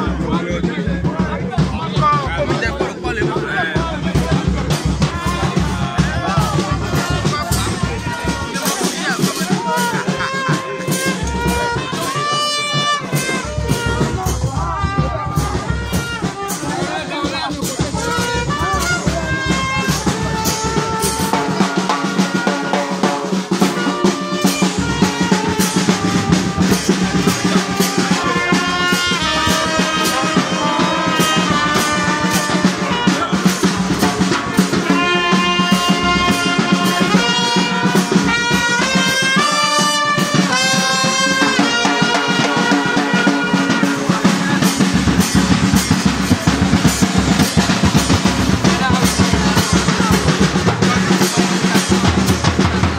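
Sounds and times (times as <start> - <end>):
brass band playing: 0.0 - 52.9
drum strokes: 0.0 - 52.9.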